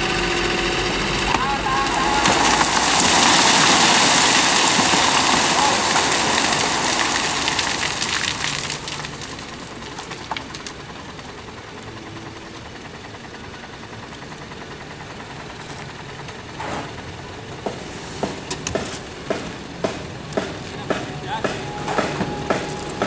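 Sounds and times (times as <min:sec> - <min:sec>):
diesel engine running: 0:00.0 - 0:23.0
sand and stones sliding out: 0:01.9 - 0:09.1.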